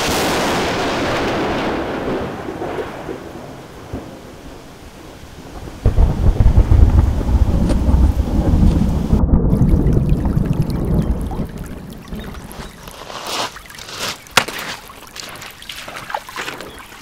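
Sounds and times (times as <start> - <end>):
thunder rumbling: 0.0 - 12.9
steady rain: 0.0 - 17.0.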